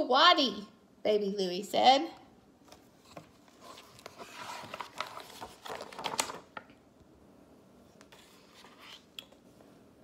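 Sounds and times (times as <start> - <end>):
book pages turning: 2.6 - 6.7, 7.9 - 9.4.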